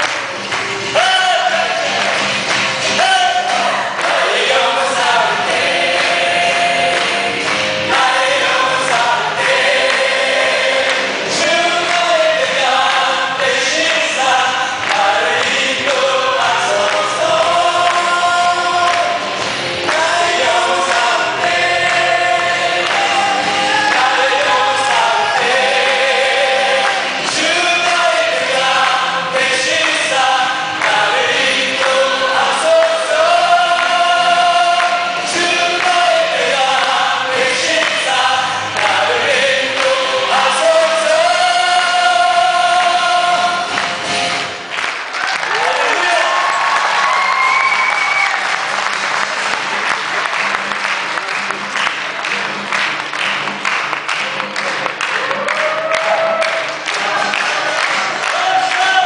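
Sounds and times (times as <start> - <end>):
backing music: 0.0 - 59.0
man singing into a microphone: 0.9 - 2.0, 2.9 - 43.8, 58.1 - 59.0
choir singing: 3.4 - 43.9.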